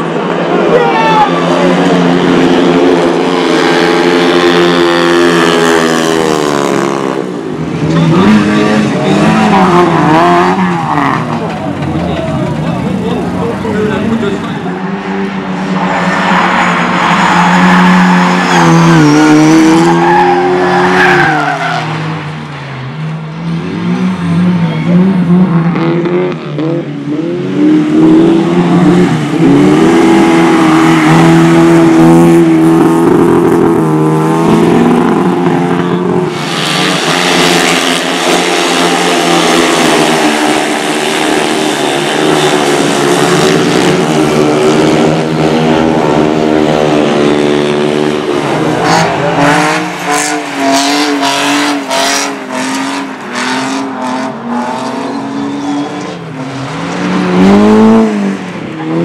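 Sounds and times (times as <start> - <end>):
racing engines revving: 0.0 - 59.0.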